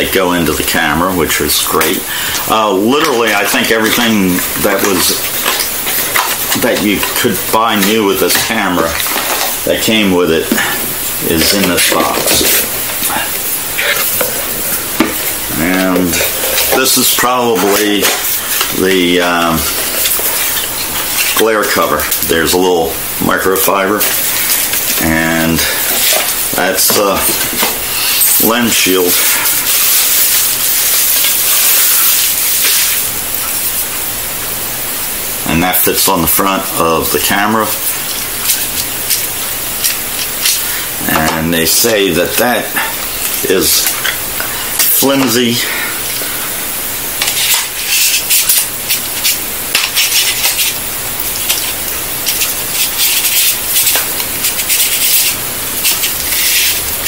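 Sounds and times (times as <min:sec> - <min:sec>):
plastic wrapping crinkling: 0:23.6 - 0:34.0, 0:36.6 - 0:57.0.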